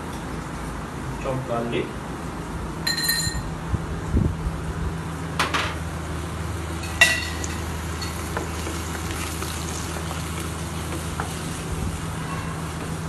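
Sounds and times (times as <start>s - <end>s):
vegetables sizzling in a frying pan: 6.8s - 13.0s.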